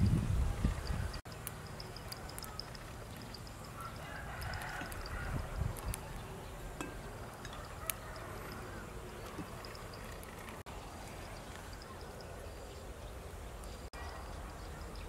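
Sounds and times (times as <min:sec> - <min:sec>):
wind rumble on microphone: 0:00.0 - 0:01.2, 0:04.0 - 0:07.6.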